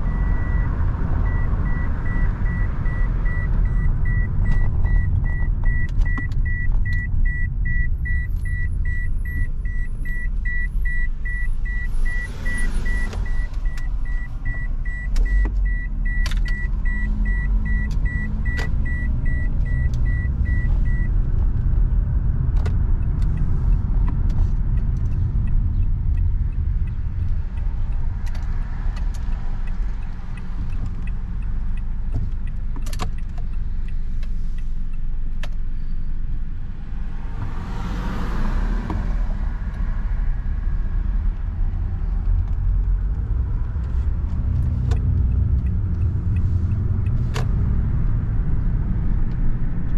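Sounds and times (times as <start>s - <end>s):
road and engine rumble: 0.0s - 49.9s.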